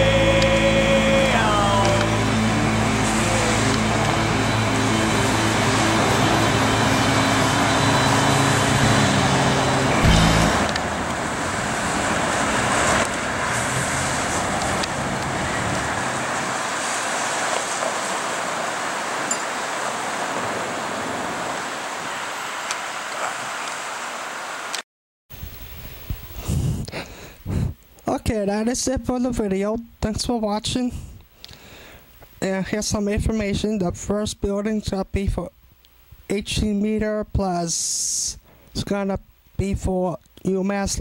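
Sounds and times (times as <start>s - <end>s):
vehicle engine humming: 0.0s - 22.2s
passing cars and road noise: 0.1s - 24.8s.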